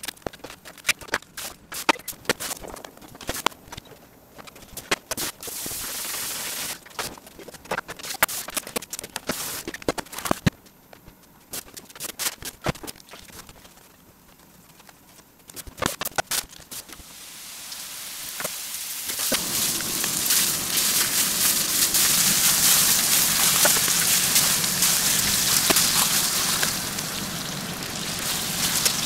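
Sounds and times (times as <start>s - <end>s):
hiss: 5.2s - 6.8s, 16.7s - 29.0s.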